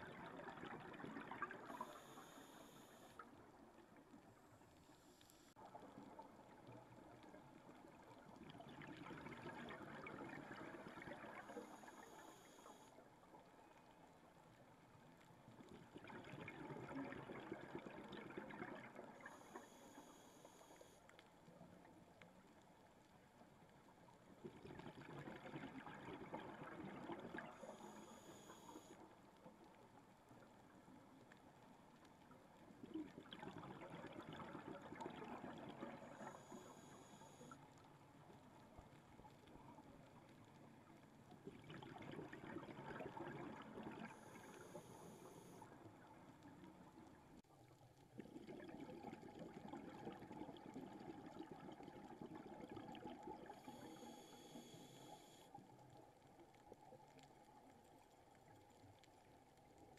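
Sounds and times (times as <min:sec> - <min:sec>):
exhaled bubbles rushing: 0:00.0 - 0:02.4, 0:08.4 - 0:12.0, 0:15.8 - 0:19.2, 0:24.5 - 0:28.0, 0:32.9 - 0:36.6, 0:41.4 - 0:44.7, 0:48.2 - 0:53.8.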